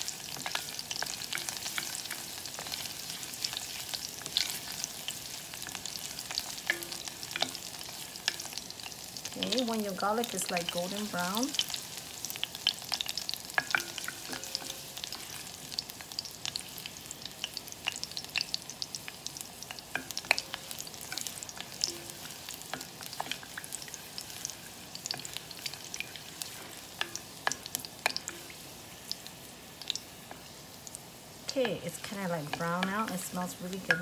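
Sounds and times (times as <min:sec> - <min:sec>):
garlic sizzling in oil: 0:00.0 - 0:34.0
wooden spoon stirring: 0:00.3 - 0:08.6.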